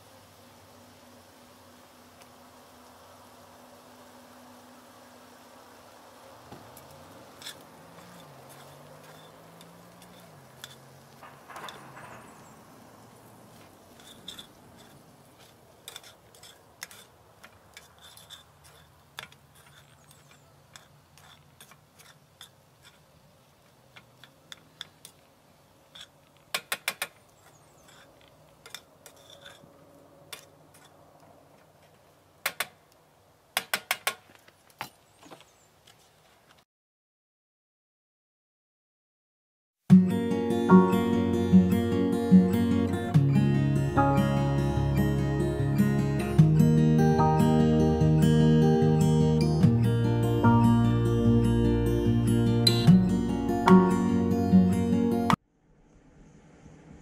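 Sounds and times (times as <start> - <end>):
utensil scraping a frying pan: 7.2 - 12.7, 13.5 - 23.1, 25.9 - 26.2, 27.4 - 29.7, 30.3 - 31.0.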